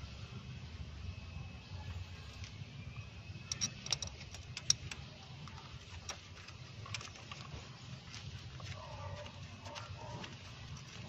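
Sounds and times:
light metallic clicks and taps: 3.5 - 11.0.

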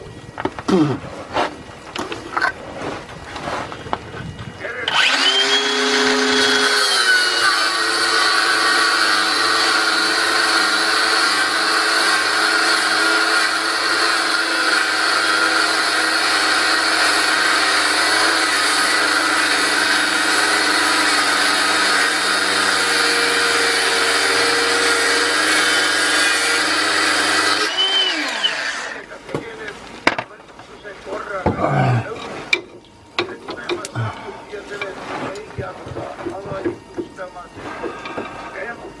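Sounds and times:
angle grinder cutting metal: 4.8 - 29.0
angle grinder spinning down: 4.9 - 29.0.

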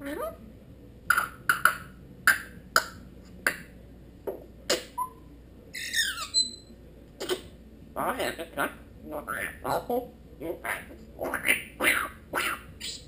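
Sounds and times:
parrot sharp calls: 10.6 - 13.0.

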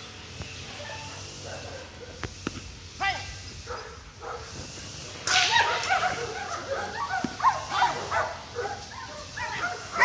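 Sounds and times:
dog yipping and whining: 5.4 - 10.0.

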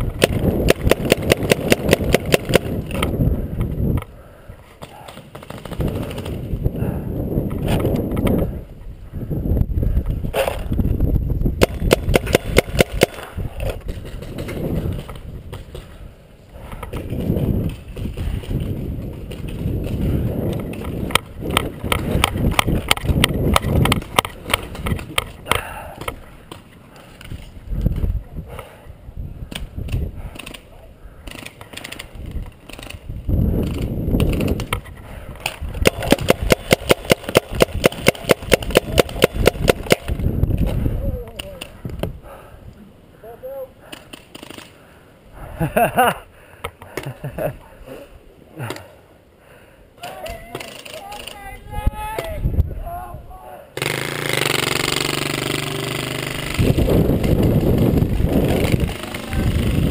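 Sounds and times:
paintball markers firing: 0.0 - 3.2, 4.8 - 6.4, 11.6 - 15.9, 33.6 - 41.8, 53.8 - 59.9.

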